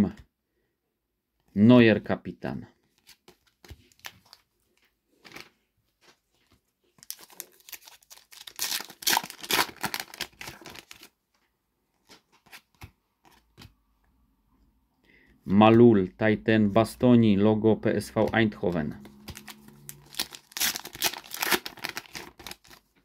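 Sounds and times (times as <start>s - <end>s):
foil packet tearing and crinkling: 7.0s - 11.1s, 19.2s - 22.9s.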